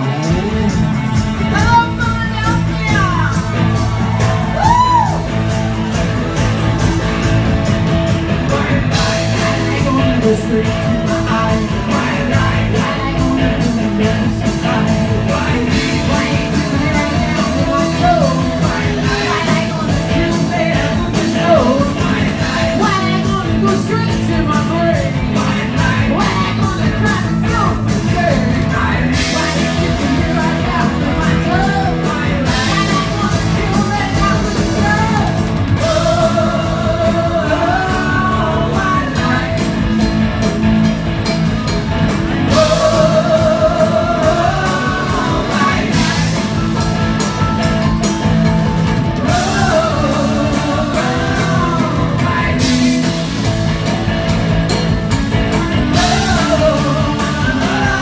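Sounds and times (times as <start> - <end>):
drum kit beat: 0.0 - 58.0
electric guitars: 0.0 - 58.0
woman singing lead: 8.5 - 40.0, 42.4 - 47.0, 49.1 - 53.5, 55.6 - 58.0.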